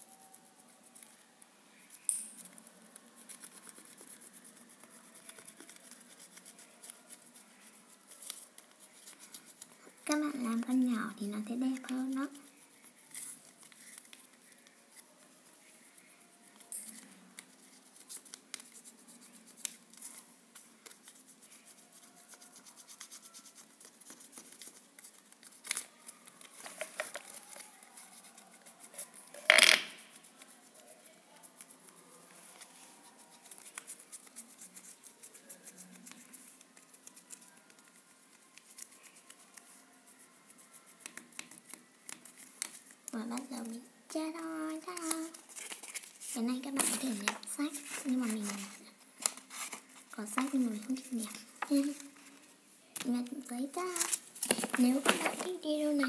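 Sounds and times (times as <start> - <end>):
paper rustling: 41.1 - 52.5, 53.2 - 56.0.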